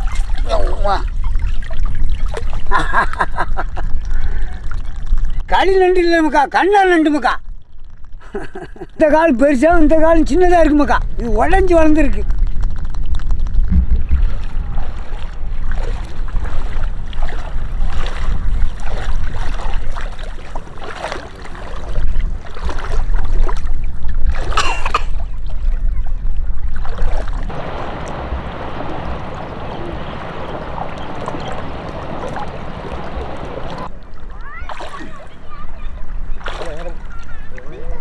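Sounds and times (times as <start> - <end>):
water lapping and splashing: 0.0 - 5.5, 11.8 - 38.0
wind buffeting microphone: 9.3 - 20.8, 25.2 - 38.0
low rumble: 12.2 - 18.8, 27.4 - 34.4
hiss of water and breeze: 27.5 - 36.2.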